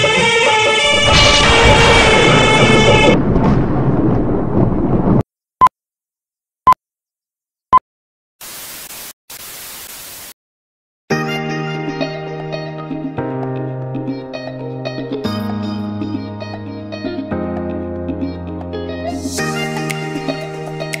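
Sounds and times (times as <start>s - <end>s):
noise: 8.4s - 10.4s
static hiss bursts: 8.4s - 10.4s
music: 11.1s - 21.0s.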